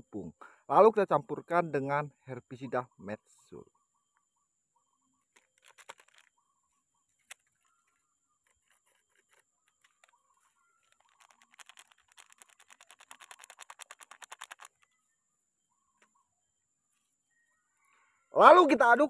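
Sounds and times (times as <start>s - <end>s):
crinkly ticks of shaken sachet: 5.3s - 6.4s, 8.4s - 10.2s, 10.8s - 14.9s.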